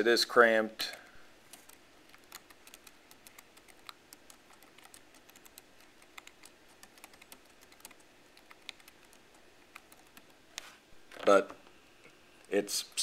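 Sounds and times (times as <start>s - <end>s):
keyboard typing clicks: 1.5s - 10.3s.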